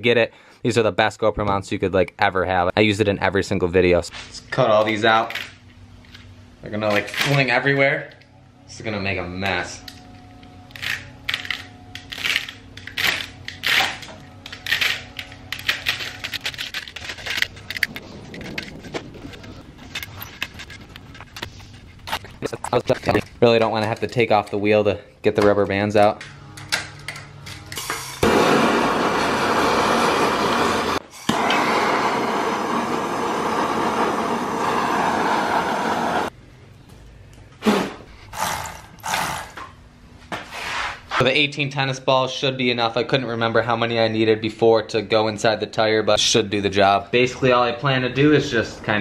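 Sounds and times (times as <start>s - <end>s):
steady low hum: 0.0s - 42.0s
gas torch burning: 27.1s - 36.4s.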